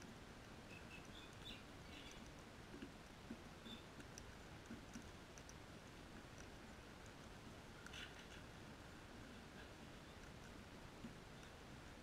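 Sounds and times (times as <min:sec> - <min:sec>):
soft bird chirps: 0:00.6 - 0:02.4, 0:03.6 - 0:04.0, 0:11.3 - 0:11.6.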